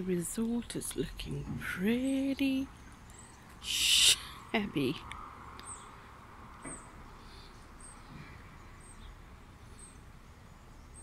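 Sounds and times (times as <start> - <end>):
bird chirping: 2.5 - 4.4, 5.6 - 11.0.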